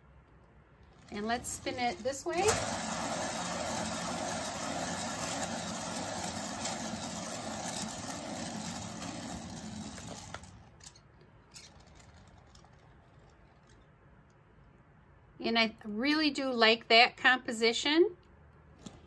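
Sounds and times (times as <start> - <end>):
spinner whirring: 0.8 - 13.8.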